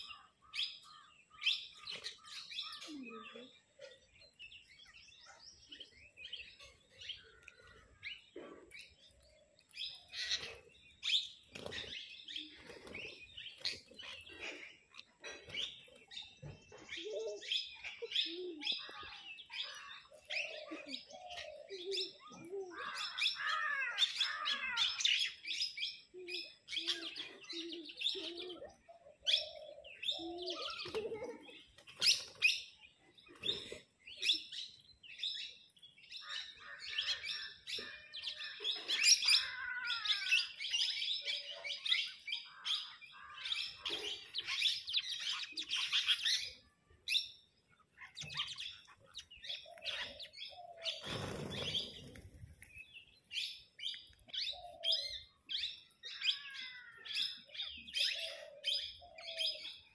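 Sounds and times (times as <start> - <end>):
parakeets chirping and squawking: 41.7 - 46.7.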